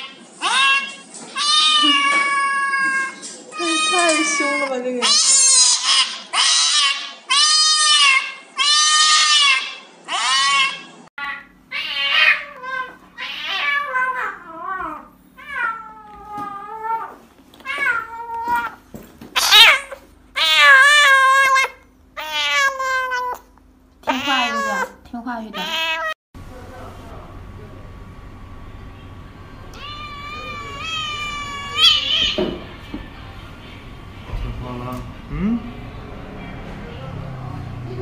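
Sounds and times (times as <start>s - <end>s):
cats meowing in distress: 0.4s - 18.8s, 19.4s - 23.5s, 24.1s - 25.0s, 25.6s - 26.2s, 29.7s - 32.6s
kitten meowing: 19.4s - 23.5s, 24.1s - 25.0s, 25.6s - 26.2s, 29.8s - 32.4s.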